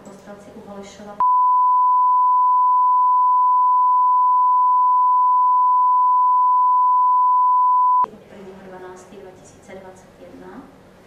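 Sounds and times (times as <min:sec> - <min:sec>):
censor bleep tone: 0:01.2 - 0:08.1.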